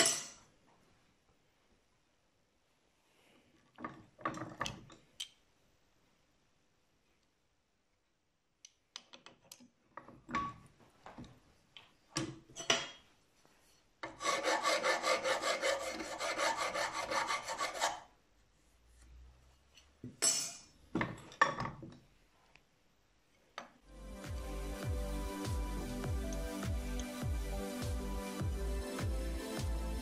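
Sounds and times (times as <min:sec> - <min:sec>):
file scraping on metal: 0:14.0 - 0:18.1.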